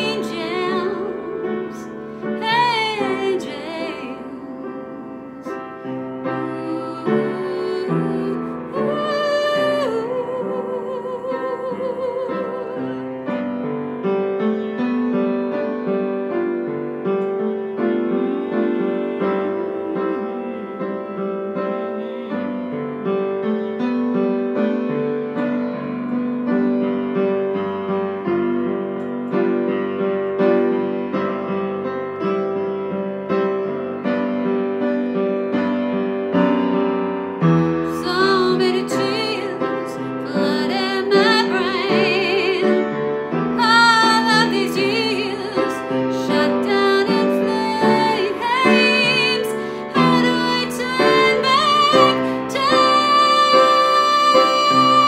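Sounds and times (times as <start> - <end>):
woman singing: 0.0 - 13.6, 17.8 - 22.9, 37.6 - 55.0
piano playing chords and melody: 0.0 - 55.0.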